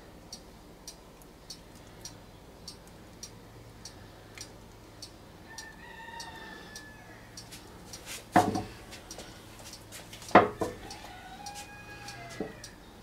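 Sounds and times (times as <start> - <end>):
sharp loud knocks: 8.4 - 8.7, 10.3 - 10.8
faint drawn-out call: 10.6 - 12.8.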